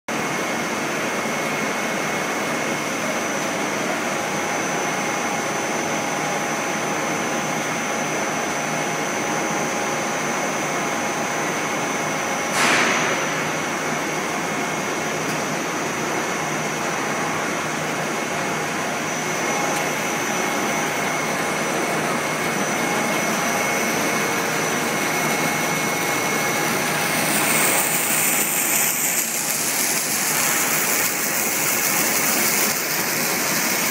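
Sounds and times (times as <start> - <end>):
machine drone with whine: 0.1 - 33.9
sharp machine clack: 12.5 - 13.5
steam hissing: 20.1 - 33.9.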